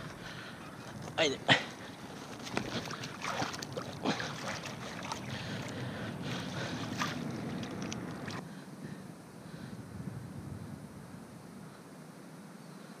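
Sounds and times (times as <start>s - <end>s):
fish splashing in shallow water: 1.8s - 8.4s.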